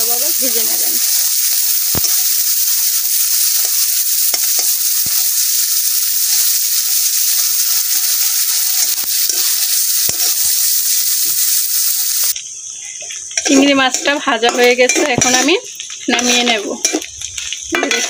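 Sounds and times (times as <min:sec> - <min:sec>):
spatula scraping wok: 0:00.0 - 0:12.4, 0:13.3 - 0:18.0
shrimp sizzling in oil: 0:00.0 - 0:18.0.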